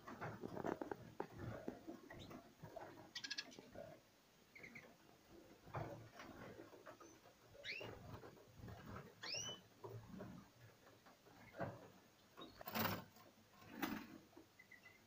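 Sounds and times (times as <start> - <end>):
soft knocks and rustling: 0.0 - 3.8, 5.4 - 9.2, 9.8 - 14.4
birds chirping: 1.3 - 5.1, 6.8 - 8.2, 9.0 - 9.7, 14.5 - 15.0.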